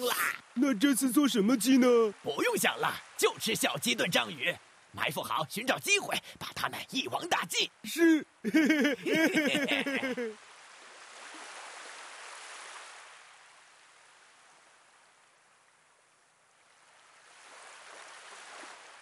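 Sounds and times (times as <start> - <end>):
person speaking: 0.0 - 10.4
ocean surf on sandy beach: 0.0 - 15.4, 16.6 - 19.0.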